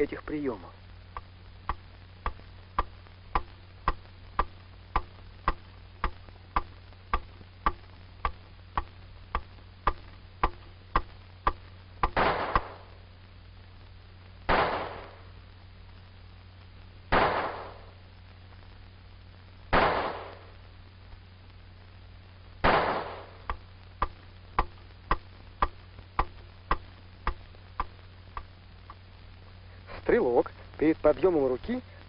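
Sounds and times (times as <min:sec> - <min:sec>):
steady ticking: 0:01.1 - 0:13.0, 0:23.4 - 0:29.3
pistol shots: 0:12.1 - 0:12.8, 0:14.5 - 0:15.2, 0:17.1 - 0:17.8, 0:19.7 - 0:20.4, 0:22.6 - 0:23.3.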